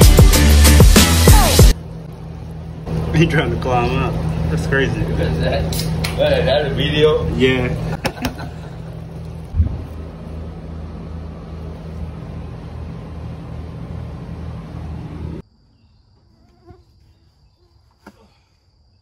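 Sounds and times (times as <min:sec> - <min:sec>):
gas burner roaring: 0:00.0 - 0:15.4
insect trill: 0:15.4 - 0:19.0.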